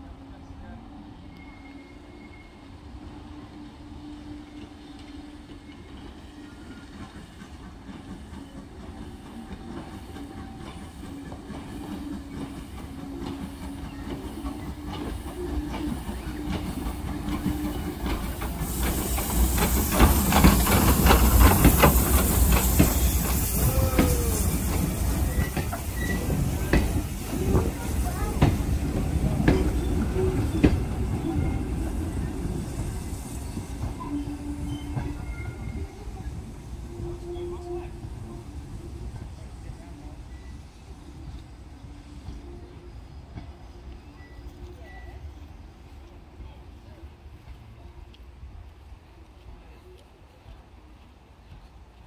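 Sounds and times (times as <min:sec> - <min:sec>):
steam locomotive passing: 0:00.0 - 0:52.0
steam hiss: 0:04.0 - 0:43.9.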